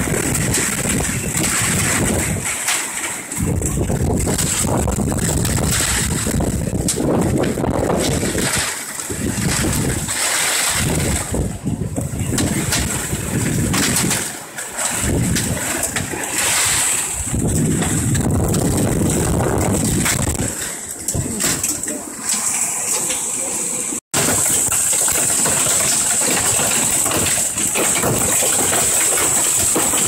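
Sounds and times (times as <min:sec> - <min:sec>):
wind buffeting microphone: 0:00.0 - 0:21.7.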